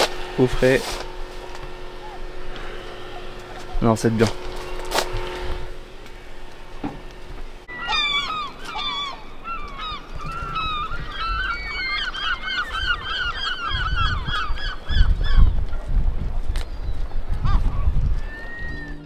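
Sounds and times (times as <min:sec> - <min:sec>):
birds honking: 0:00.0 - 0:15.5.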